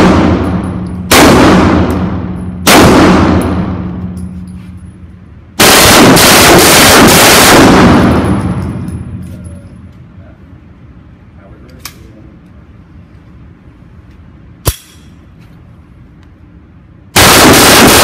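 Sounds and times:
pistol gunshots with echo: 0.0s - 4.1s, 5.6s - 8.8s, 17.2s - 18.0s.

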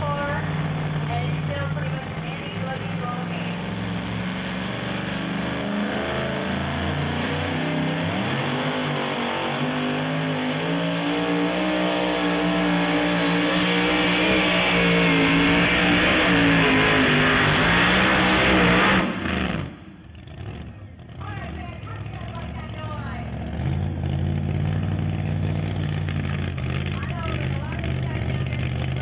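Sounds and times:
truck engine running flat out: 0.0s - 29.0s.

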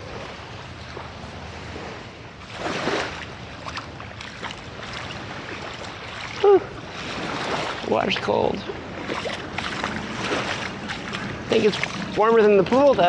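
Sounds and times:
small waves washing on shore: 0.0s - 13.0s
wind buffeting microphone: 0.0s - 13.0s.

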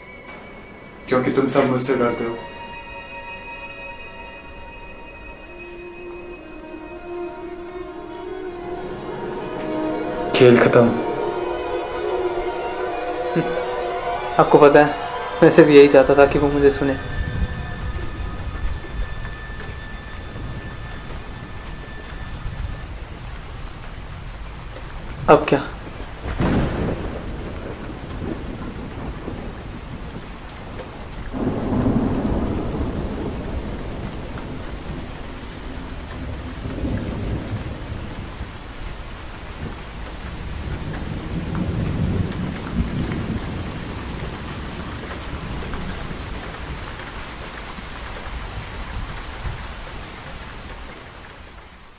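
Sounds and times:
steady rain: 0.0s - 51.9s
rolling thunder: 13.0s - 51.2s.

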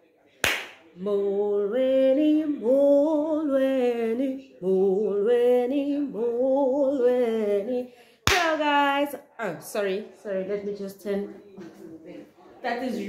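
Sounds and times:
woman singing unaccompanied: 1.0s - 9.3s.

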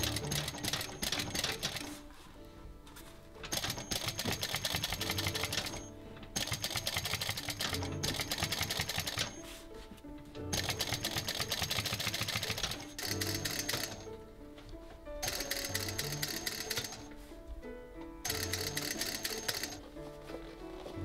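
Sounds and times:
sewing machine stitching: 0.0s - 2.0s, 3.4s - 9.4s, 10.5s - 14.1s, 15.2s - 17.1s, 18.3s - 19.8s
background music: 0.0s - 21.0s.

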